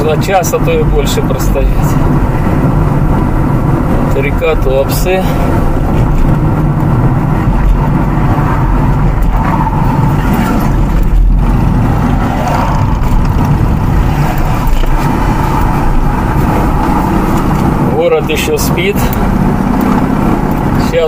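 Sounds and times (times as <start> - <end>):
car road noise rumble: 0.0 - 21.0.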